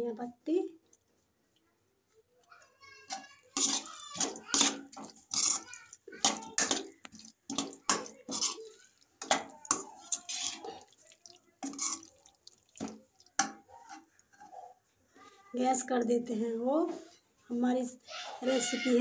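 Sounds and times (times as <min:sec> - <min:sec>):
metal spoon scraping a pan: 0:03.1 - 0:14.8.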